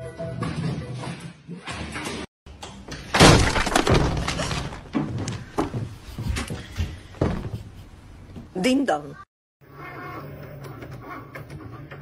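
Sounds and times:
shattering crash: 0:03.1 - 0:04.9.

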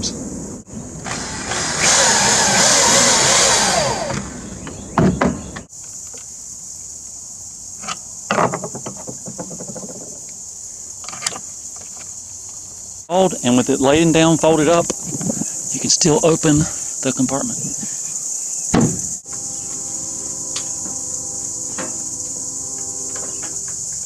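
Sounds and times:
power drill driving screw: 0:01.0 - 0:04.5.

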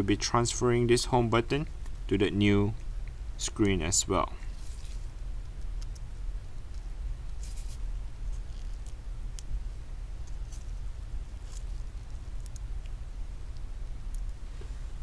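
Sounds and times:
low hum: 0:00.0 - 0:15.0
small clicks and rustles: 0:10.2 - 0:14.8.

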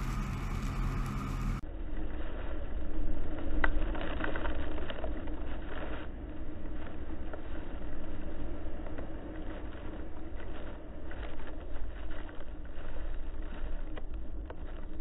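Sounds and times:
water spraying against vehicle: 0:00.0 - 0:01.6
vehicle rumble: 0:00.0 - 0:15.0.

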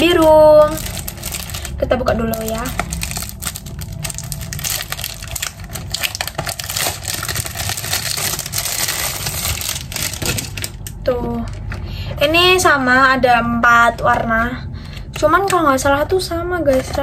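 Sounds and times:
plastic bag crinkling: 0:00.0 - 0:11.8.

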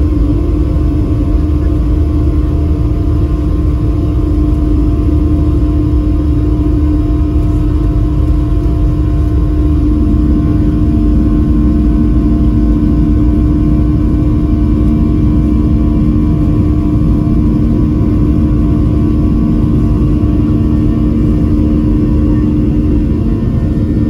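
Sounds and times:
jet engine drone in cabin: 0:00.0 - 0:24.0
wheels rumbling on runway: 0:00.0 - 0:24.0
steady tone: 0:09.6 - 0:24.0.

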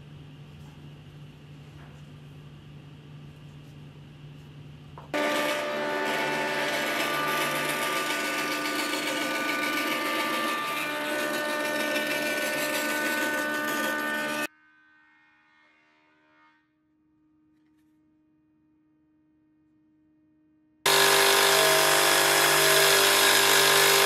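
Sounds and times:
band saw cutting wood: 0:05.2 - 0:14.5, 0:20.9 - 0:24.0.

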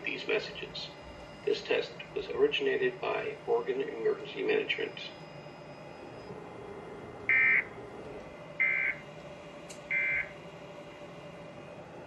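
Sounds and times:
digital data tone bursts: 0:07.3 - 0:07.7, 0:08.6 - 0:11.7.

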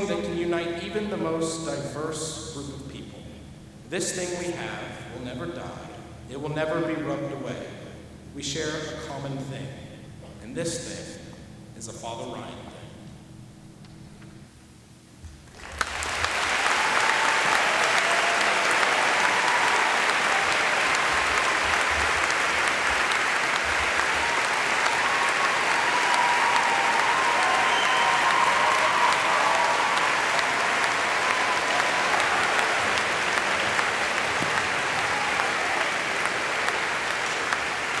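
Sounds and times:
audience applauding: 0:15.5 - 0:38.0.

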